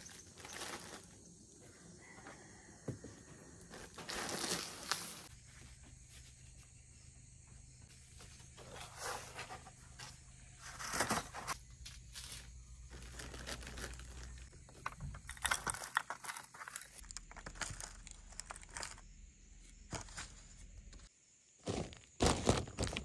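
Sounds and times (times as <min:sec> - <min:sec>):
rustling and crinkling: 0:00.0 - 0:01.3, 0:03.3 - 0:06.8, 0:07.8 - 0:23.0.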